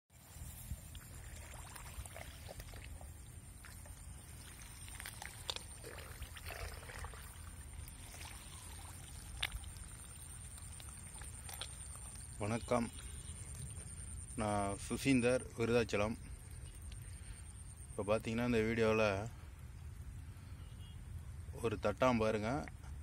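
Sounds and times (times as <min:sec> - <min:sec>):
rice plants rustling: 0:00.2 - 0:14.0.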